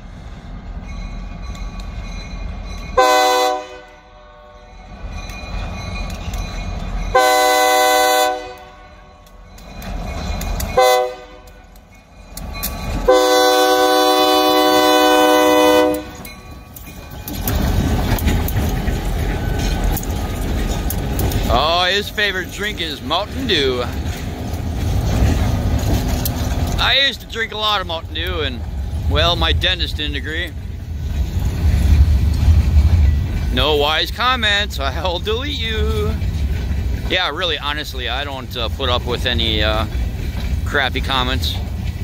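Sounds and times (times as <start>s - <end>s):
locomotive engine and wheels rumbling: 0.0s - 42.0s
locomotive air horn blasts: 3.0s - 4.7s, 7.1s - 9.2s, 10.8s - 11.6s, 13.1s - 16.2s.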